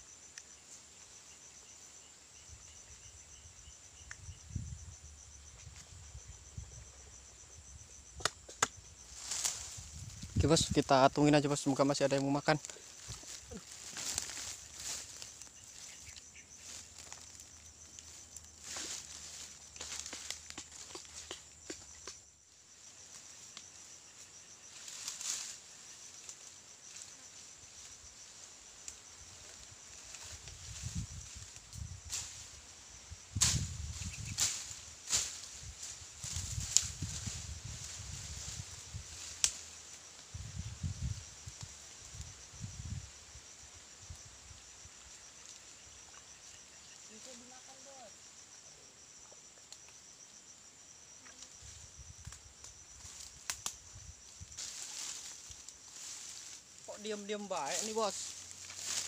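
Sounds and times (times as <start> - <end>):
insects pulsing call: 0.0 - 59.0
lower pulsing insect call: 0.0 - 59.0
hands rustling in grass and soil: 9.0 - 22.2, 24.7 - 43.5, 51.4 - 59.0.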